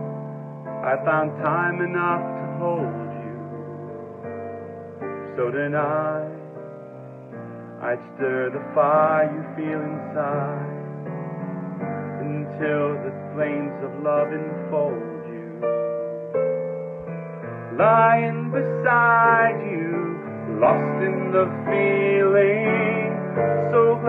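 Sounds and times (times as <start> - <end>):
piano accompaniment: 0.0 - 24.0
man singing: 0.8 - 4.5, 5.2 - 6.8, 7.8 - 11.2, 11.8 - 15.9, 17.7 - 24.0.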